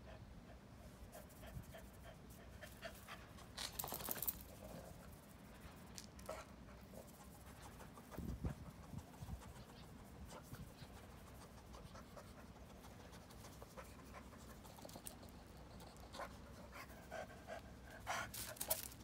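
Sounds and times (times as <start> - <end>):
dog sniffing grass: 4.5 - 19.0
dog panting: 6.3 - 18.9.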